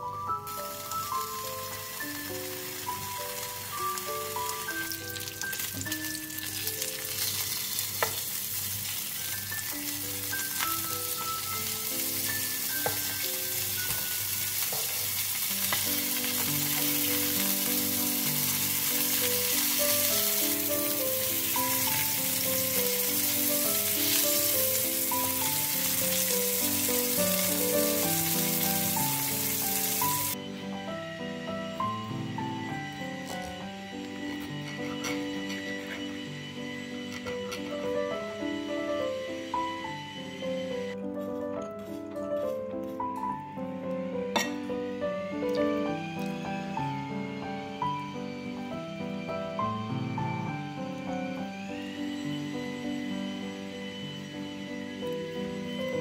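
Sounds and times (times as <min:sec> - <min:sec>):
light background music: 0:00.0 - 0:56.0
food sizzling in a pan: 0:00.3 - 0:41.0.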